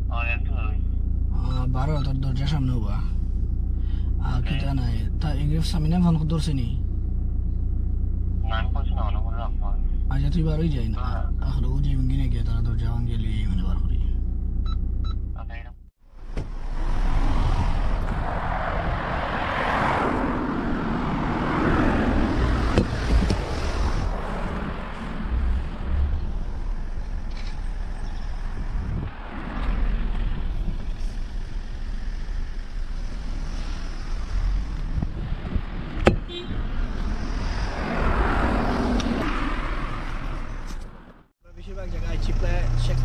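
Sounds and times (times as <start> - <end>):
steady low rumble: 0.0 - 39.3
cars passing: 16.0 - 43.0.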